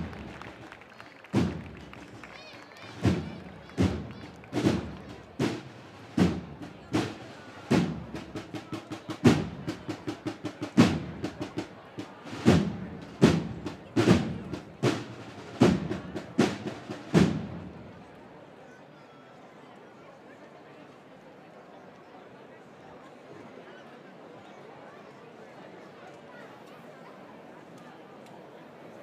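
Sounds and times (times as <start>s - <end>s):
snare drum strokes: 0.0s - 17.8s.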